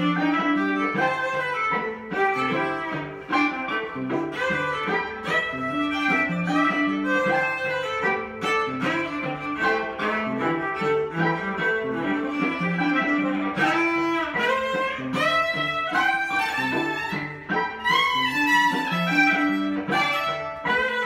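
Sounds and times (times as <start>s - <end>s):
electric violin melody: 0.0s - 21.0s.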